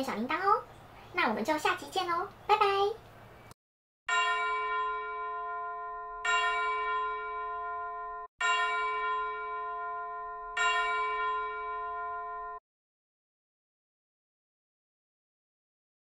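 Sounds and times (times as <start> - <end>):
tubular bell chime: 4.1 - 12.6.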